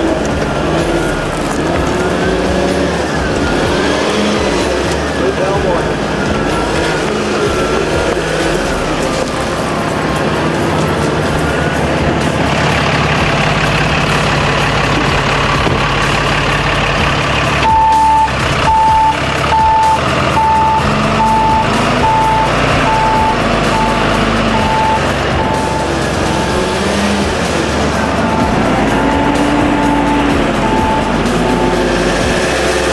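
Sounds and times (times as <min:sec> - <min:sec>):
vehicle engine running: 0:00.0 - 0:32.9
reversing alarm beeping: 0:17.6 - 0:32.9.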